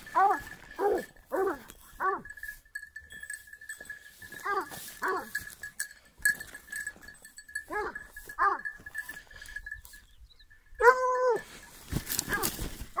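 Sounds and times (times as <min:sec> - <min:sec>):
dog yelping: 0:00.0 - 0:02.3, 0:07.7 - 0:08.8, 0:10.8 - 0:11.5, 0:12.2 - 0:13.0
dog baying: 0:00.0 - 0:02.4, 0:04.4 - 0:05.4, 0:07.6 - 0:08.9, 0:10.8 - 0:11.5.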